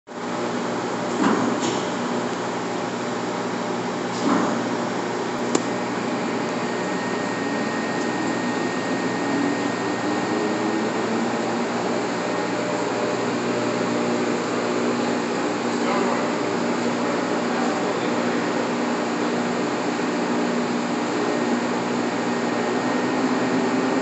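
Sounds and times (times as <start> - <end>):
lathe mechanical hum: 0.2 - 24.0
sharp click: 5.5 - 5.7.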